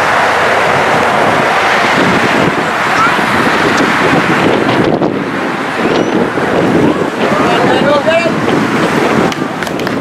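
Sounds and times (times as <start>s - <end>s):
wind on microphone: 0.0s - 10.0s
faint voices: 2.6s - 9.6s.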